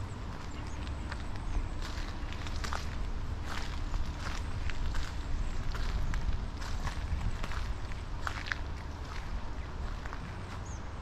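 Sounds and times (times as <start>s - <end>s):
footsteps on wet gravel: 0.0s - 11.0s
low rumble: 0.0s - 11.0s.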